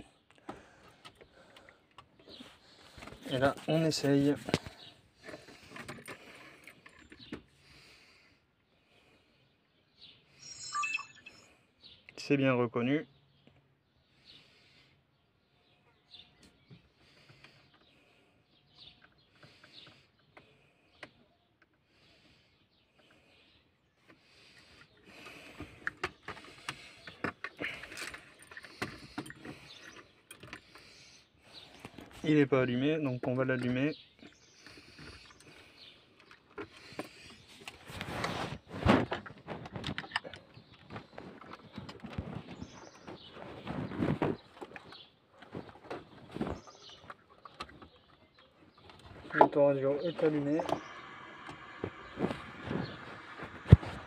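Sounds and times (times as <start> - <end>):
phone handling rustling and scraping: 2.0 - 7.6, 24.1 - 32.2, 33.5 - 48.0
faint bird chirps: 9.4 - 24.0.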